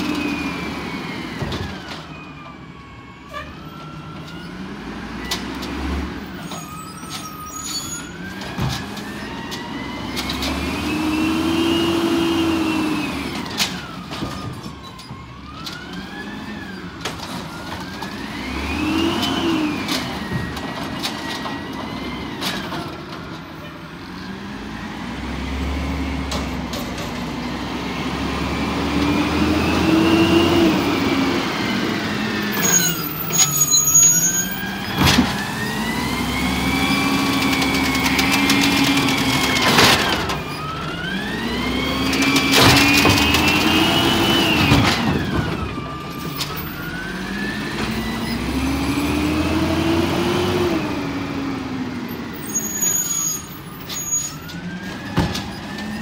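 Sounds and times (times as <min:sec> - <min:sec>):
truck engine revving: 0:09.8 - 0:13.6, 0:24.3 - 0:33.6, 0:34.5 - 0:46.0, 0:46.8 - 0:52.5.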